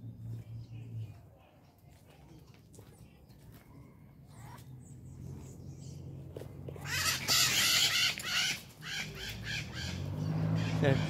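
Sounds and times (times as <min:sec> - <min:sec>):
parrots screeching: 0:06.8 - 0:11.0.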